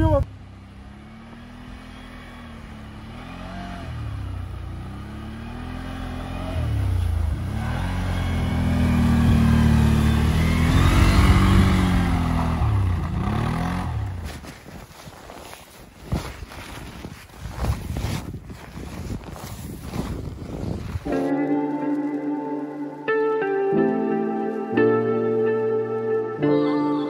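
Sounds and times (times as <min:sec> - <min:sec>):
tracked atv engine revving: 0:00.0 - 0:14.5.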